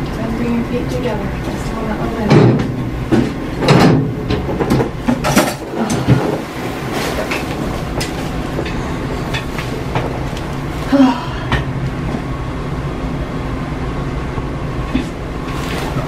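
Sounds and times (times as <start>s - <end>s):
low background rumble: 0.0s - 16.0s
cloth sheet rustling: 6.1s - 8.6s, 15.4s - 16.0s.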